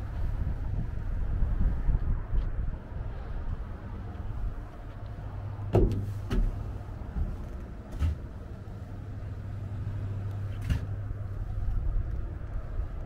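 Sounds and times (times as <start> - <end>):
low mechanical hum: 0.0 - 13.0
sharp knocks: 5.7 - 6.6.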